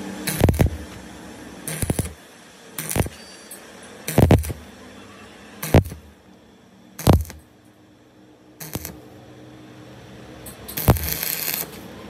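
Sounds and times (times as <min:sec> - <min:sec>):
arc welding crackling: 0:00.0 - 0:03.2, 0:04.0 - 0:04.7, 0:05.6 - 0:06.2, 0:07.0 - 0:07.5, 0:08.6 - 0:09.0, 0:10.8 - 0:12.0.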